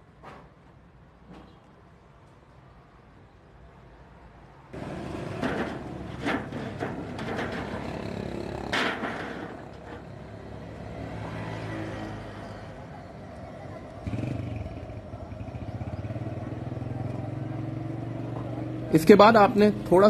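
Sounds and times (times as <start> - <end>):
vehicle engines passing: 4.6 - 20.0.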